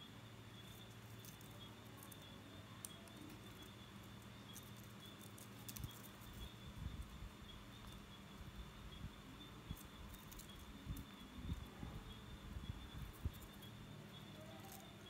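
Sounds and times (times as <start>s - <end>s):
low electrical hum: 0.0s - 15.0s
wire winding ticks and rustles: 4.5s - 6.4s.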